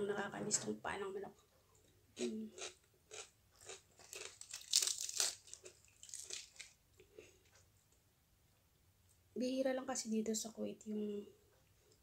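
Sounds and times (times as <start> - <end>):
chewing with wet crunching: 2.6 - 6.8.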